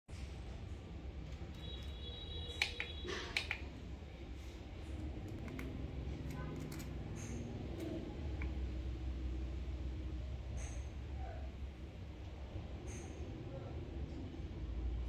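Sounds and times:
low steady hum: 0.2 - 15.0
test probes clicking on metal terminals: 1.3 - 3.7.

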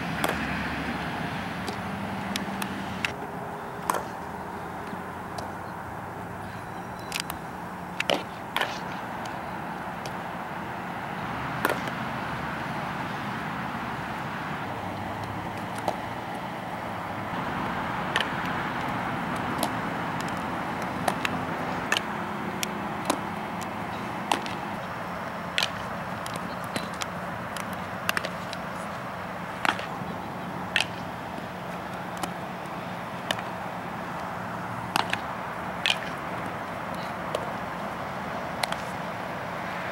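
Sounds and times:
outdoor background noise: 0.0 - 39.9
ball smacking into glove: 0.2 - 0.4, 3.8 - 4.2, 11.6 - 12.0.

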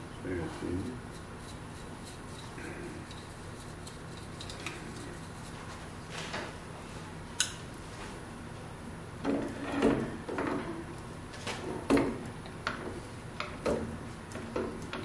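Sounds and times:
metal scraping rubs: 0.4 - 6.3.

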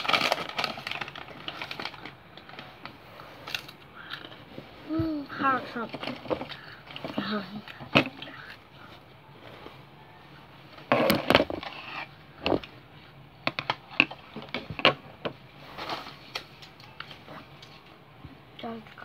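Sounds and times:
snack wrappers crinkling: 0.0 - 4.4.

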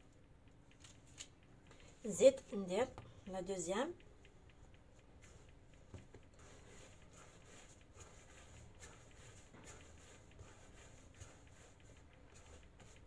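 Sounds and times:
hands rolling dough on marble: 1.9 - 13.0.

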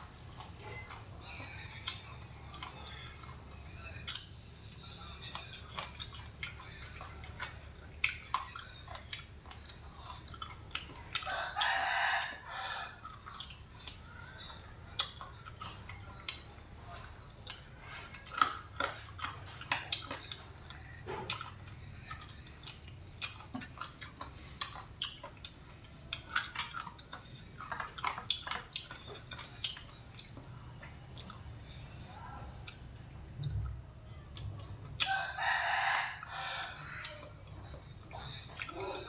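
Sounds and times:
chewing and lip smacks: 0.0 - 39.0
rooster crowing: 11.2 - 13.0, 35.0 - 37.0.

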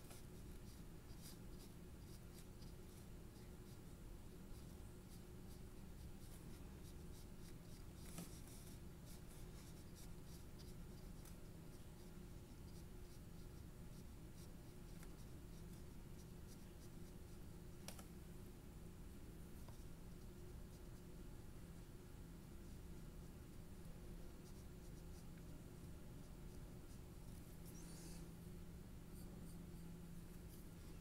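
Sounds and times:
paintbrush brushing on paper: 0.0 - 17.4, 22.4 - 28.4
low steady hum: 0.0 - 31.0.

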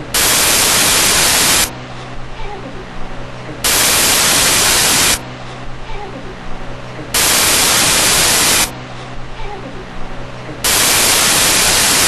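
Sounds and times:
bursts of hissing static: 0.0 - 1.7, 3.6 - 5.2, 7.2 - 8.7, 10.6 - 12.0
low electrical hum: 0.0 - 12.0.

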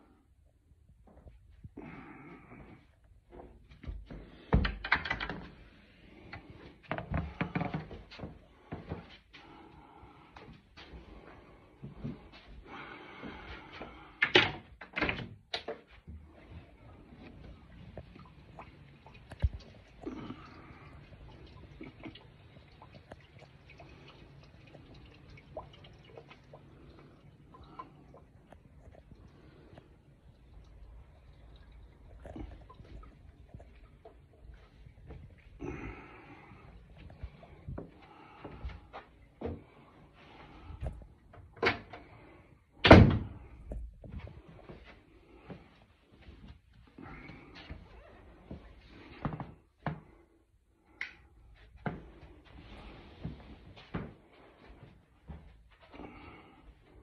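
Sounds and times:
water dripping: 1.0 - 57.0
low steady hum: 16.0 - 57.0.

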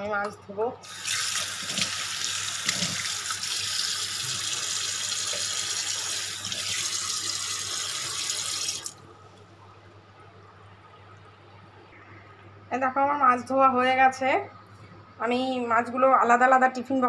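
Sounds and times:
faint low hum: 8.8 - 17.0.

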